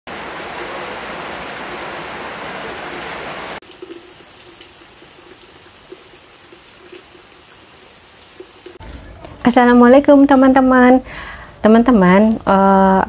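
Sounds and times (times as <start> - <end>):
heavy rain hissing: 0.1 - 3.6.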